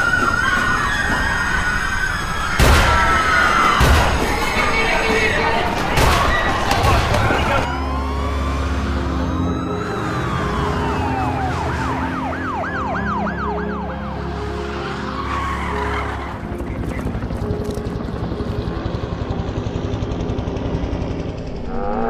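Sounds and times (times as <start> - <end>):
police siren yelping: 0.0 - 17.6.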